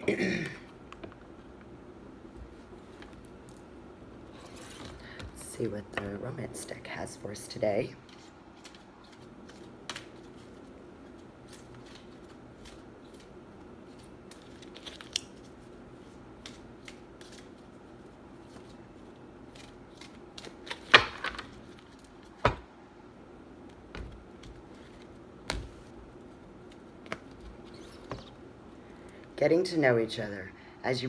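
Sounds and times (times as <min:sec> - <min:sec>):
cards being shuffled: 0:08.0 - 0:22.3, 0:23.6 - 0:28.4.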